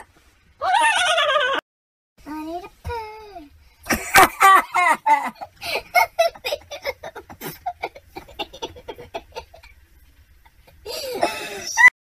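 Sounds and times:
child laughing: 3.9s - 9.7s, 10.7s - 11.9s.

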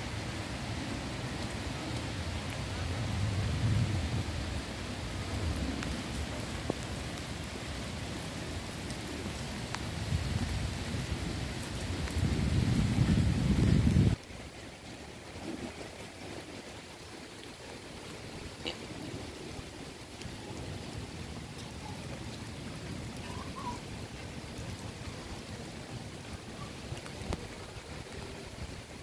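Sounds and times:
rain falling on leaves: 0.0s - 29.0s
faint water drips: 14.1s - 29.0s.

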